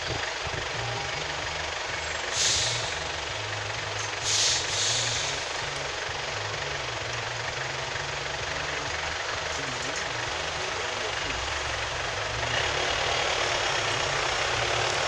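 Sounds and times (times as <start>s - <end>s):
vehicle engine humming: 0.0s - 15.0s
short hisses: 2.3s - 3.0s, 4.2s - 5.4s.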